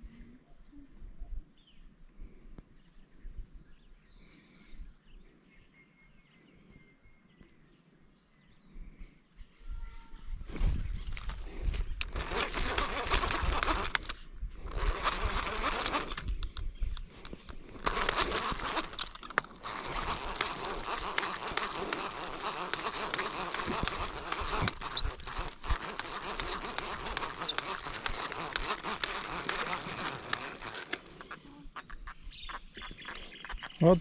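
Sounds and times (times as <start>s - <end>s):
handling rustle: 10.5s - 34.0s
fishing reel cranking: 11.1s - 34.0s
small clicks: 11.1s - 34.0s.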